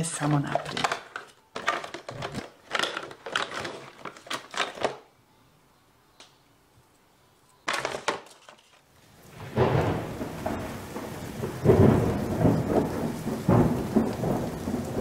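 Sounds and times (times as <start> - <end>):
steady rain: 8.9 - 15.0
rolling thunder: 9.2 - 15.0.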